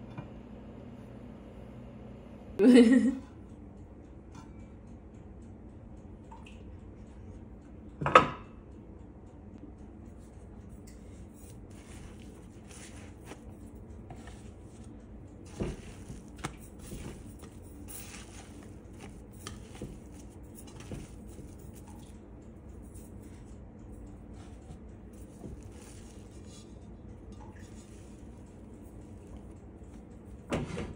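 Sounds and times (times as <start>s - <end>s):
hands squelching dough: 11.2s - 22.1s, 24.3s - 26.8s.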